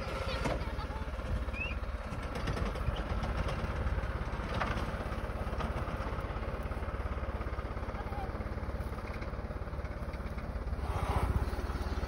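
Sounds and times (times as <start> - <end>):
tree shaker engine pulsing: 0.0 - 12.0.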